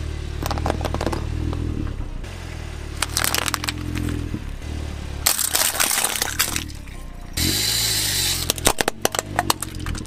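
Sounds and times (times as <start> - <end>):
car engine idling: 0.0 - 10.0
plastic cups crackling: 3.0 - 4.2, 5.3 - 7.0, 8.4 - 10.0
tyre crushing objects: 3.0 - 4.3, 5.2 - 6.8.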